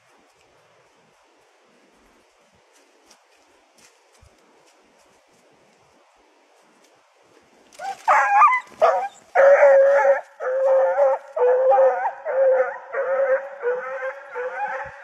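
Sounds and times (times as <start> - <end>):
hound baying: 7.8 - 15.0.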